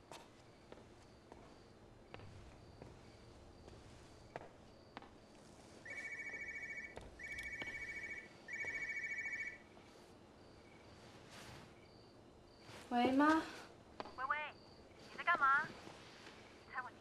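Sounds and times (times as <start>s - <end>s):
electronic telephone ringing: 5.8s - 9.7s.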